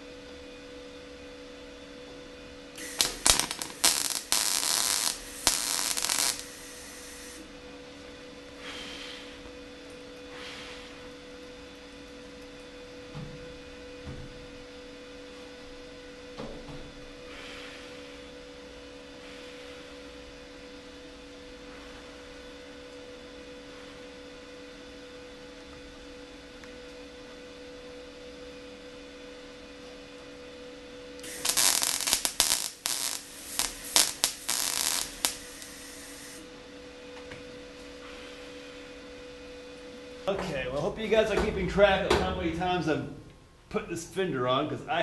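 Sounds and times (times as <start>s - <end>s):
electrical hum: 0.0s - 45.0s
welder arc crackling: 2.8s - 8.6s, 31.2s - 36.5s.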